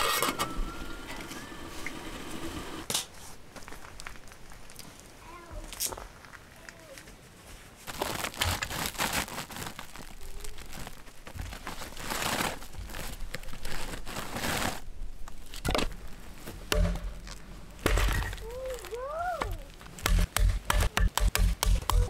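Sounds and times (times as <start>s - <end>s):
plastic bag crinkling and rustling: 3.6s - 20.0s
firewood pulled from bag: 7.7s - 17.5s, 18.1s - 20.0s.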